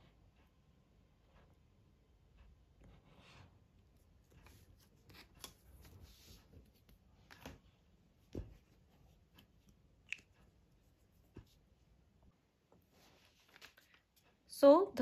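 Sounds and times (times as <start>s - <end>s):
paper rustling: 4.3s - 7.6s, 12.9s - 14.4s.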